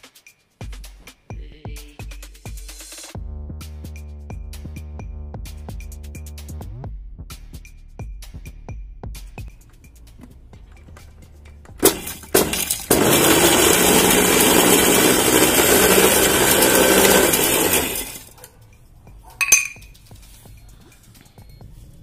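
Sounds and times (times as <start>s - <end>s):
candy clattering in grinder jar: 11.8s - 18.4s
mixer grinder motor: 11.8s - 18.4s.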